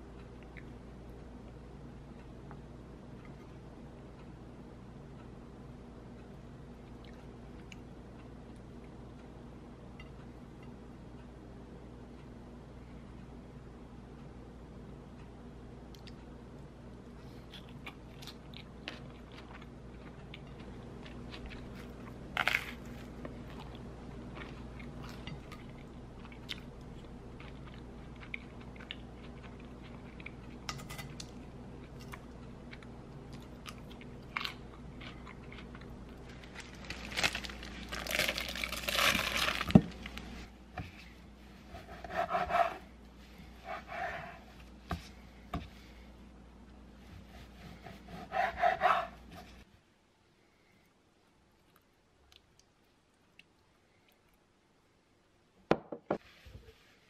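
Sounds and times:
person chewing and crunching: 0:17.4 - 0:40.2.

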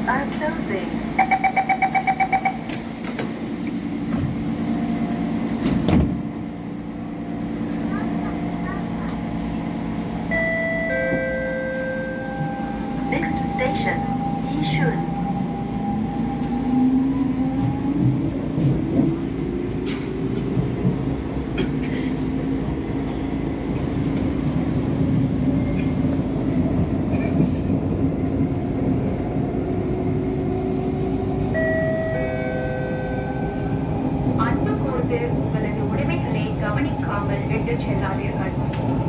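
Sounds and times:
wheels rumbling on rail: 0:00.0 - 0:39.0.

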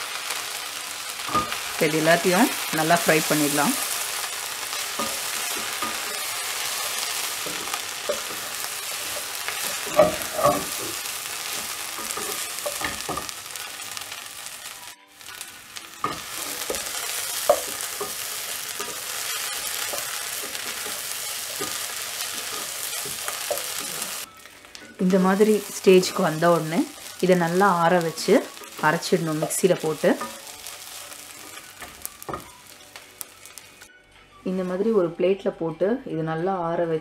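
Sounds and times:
herbs sizzling in hot oil: 0:00.0 - 0:33.9
spatula knocking and scraping pan: 0:06.9 - 0:13.4.

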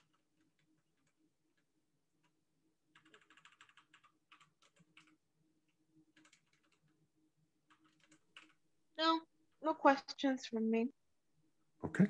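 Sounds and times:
faint keyboard typing: 0:00.0 - 0:08.6.

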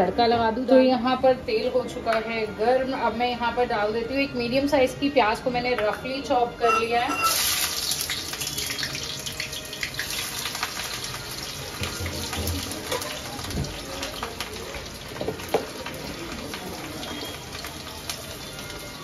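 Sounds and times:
onion sizzling in oil: 0:06.6 - 0:19.0.

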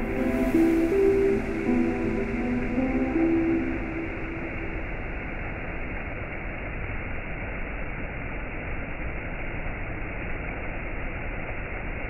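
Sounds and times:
waterfall rushing: 0:00.0 - 0:06.6.

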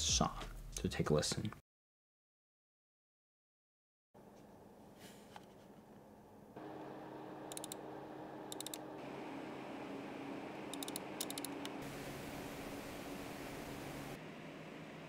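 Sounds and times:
computer fans whirring: 0:06.6 - 0:15.0.

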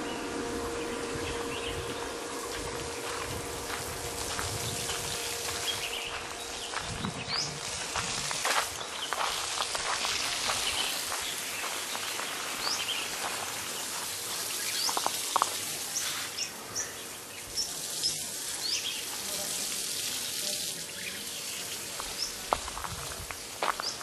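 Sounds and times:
steady high hiss: 0:00.0 - 0:24.0
bird chirping: 0:04.6 - 0:07.6.

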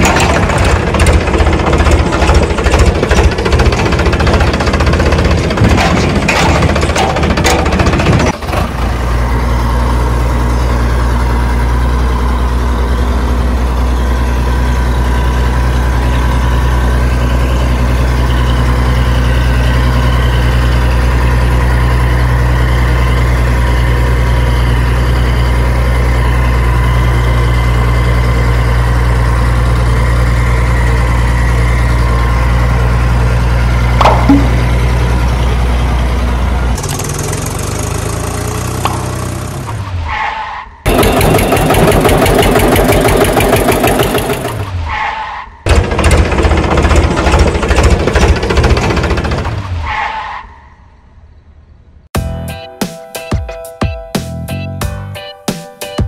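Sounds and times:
heavy engine idling: 0:00.0 - 0:40.0, 0:40.9 - 0:44.8, 0:45.7 - 0:49.8.

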